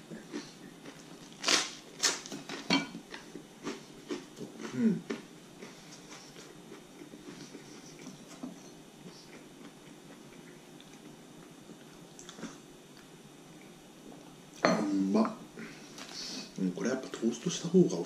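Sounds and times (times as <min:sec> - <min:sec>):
chewing bread: 0:00.0 - 0:13.2.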